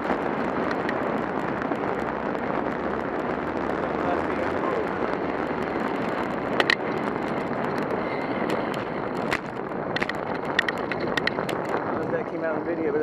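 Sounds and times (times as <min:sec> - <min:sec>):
bicycle tyre noise: 0:00.0 - 0:13.0
wind on microphone: 0:00.0 - 0:13.0.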